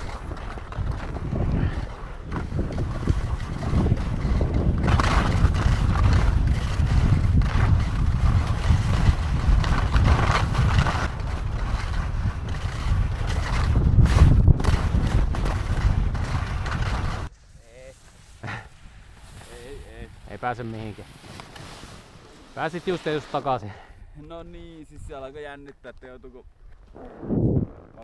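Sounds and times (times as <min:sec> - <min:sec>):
wind buffeting microphone: 0:00.0 - 0:17.3, 0:23.8 - 0:28.0
skis sliding over crusty snow: 0:00.0 - 0:27.0.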